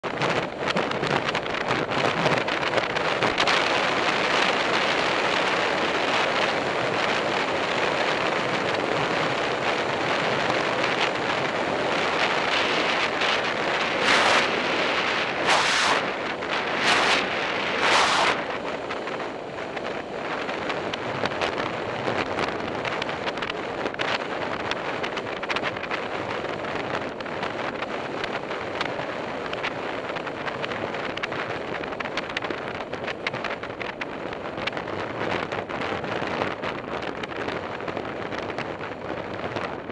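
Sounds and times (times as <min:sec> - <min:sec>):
wind rushing over microphone: 0:00.0 - 0:39.9.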